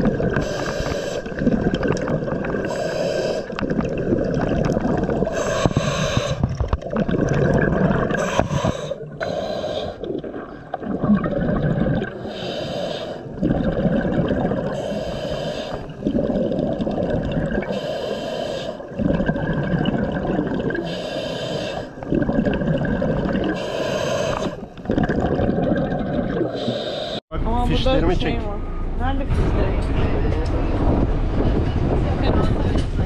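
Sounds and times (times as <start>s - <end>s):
bubbling exhale: 0.0s - 27.2s
regulator hissing inhale: 0.4s - 1.4s, 2.7s - 3.6s, 5.3s - 6.5s, 8.2s - 10.0s, 12.2s - 13.3s, 14.8s - 15.9s, 17.7s - 18.9s, 20.8s - 22.0s, 23.5s - 24.7s, 26.5s - 27.2s.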